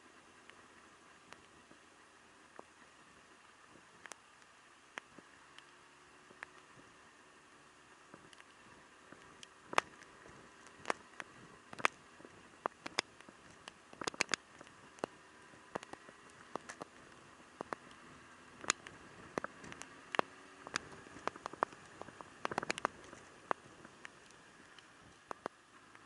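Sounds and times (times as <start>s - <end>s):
faint steady hiss: 0.0s - 26.0s
raindrops tapping: 12.6s - 18.0s, 18.6s - 25.6s.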